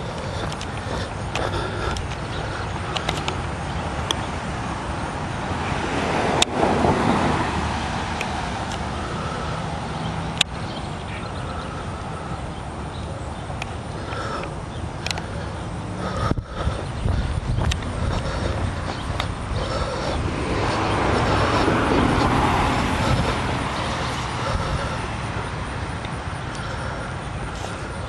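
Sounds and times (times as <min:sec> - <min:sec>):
car passing: 0:00.0 - 0:28.0
outdoor background noise: 0:00.0 - 0:28.0
sharp clicks: 0:02.9 - 0:04.2, 0:14.4 - 0:15.2.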